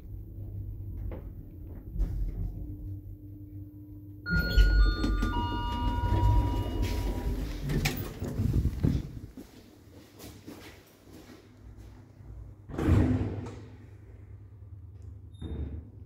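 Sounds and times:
lift humming: 0.8 - 9.3
three-note arrival chime: 4.3 - 7.5
sliding doors rumbling and clicking: 4.3 - 9.3.

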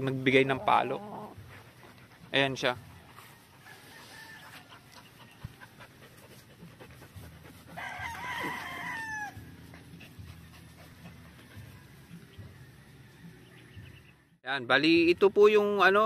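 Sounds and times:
rooster crowing: 3.6 - 4.7, 7.8 - 9.4.

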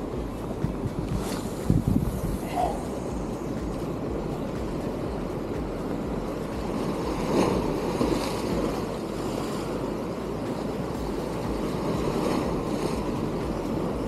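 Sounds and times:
wind buffeting microphone: 0.0 - 10.0
sea waves washing against rocks: 0.0 - 14.0.

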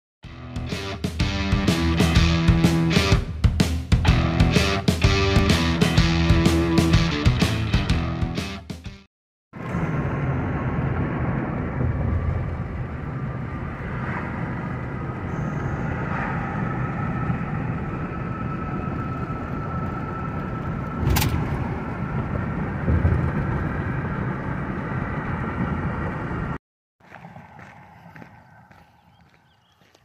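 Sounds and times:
car cabin road and engine rumble: 20.5 - 26.6.

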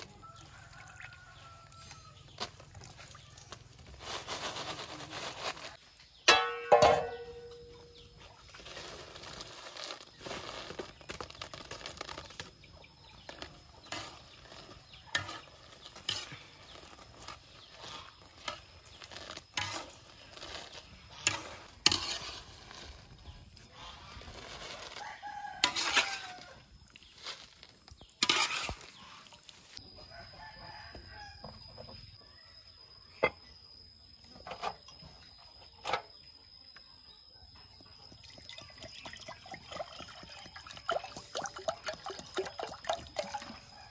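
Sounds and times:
rooster crowing: 0.0 - 2.2, 25.0 - 26.7, 30.0 - 31.6.

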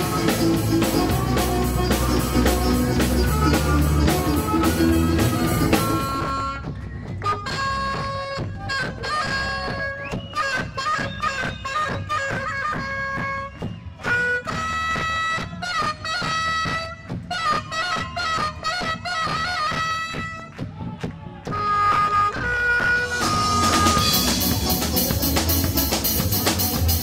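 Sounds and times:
rock band playing: 0.0 - 20.6, 21.6 - 27.0
saxophone solo: 0.0 - 20.6, 21.4 - 27.0.

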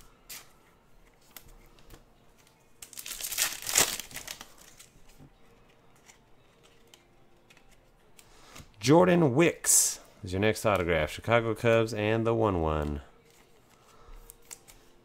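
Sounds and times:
card pack wrapper tearing: 2.8 - 4.9, 14.3 - 14.8.

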